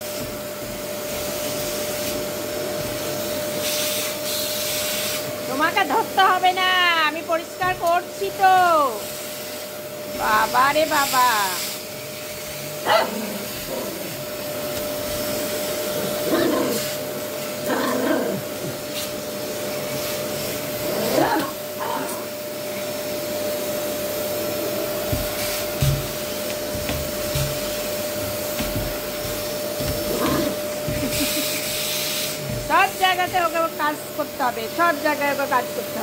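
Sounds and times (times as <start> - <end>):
vacuum cleaner humming: 0.0 - 36.0
dog barking: 12.8 - 14.0, 16.3 - 16.8, 21.0 - 22.2.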